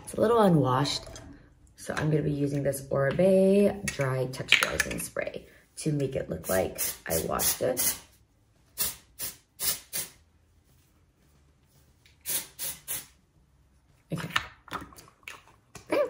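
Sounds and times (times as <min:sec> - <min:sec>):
aerosol spray hissing: 0:06.5 - 0:08.1, 0:08.8 - 0:10.2, 0:12.2 - 0:13.1.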